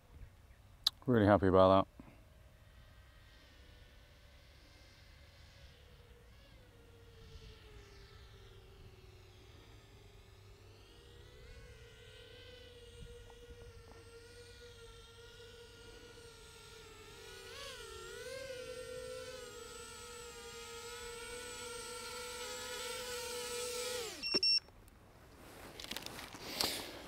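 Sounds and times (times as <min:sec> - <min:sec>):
drone motors whining: 0:02.5 - 0:24.8
short beeps: 0:24.2 - 0:24.7.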